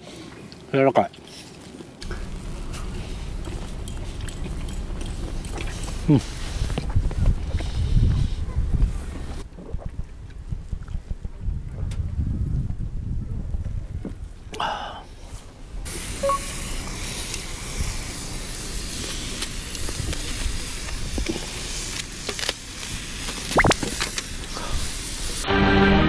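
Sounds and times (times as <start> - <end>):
wind rumble on microphone: 2.1 - 15.9
meat sizzling in skillet: 15.9 - 25.4.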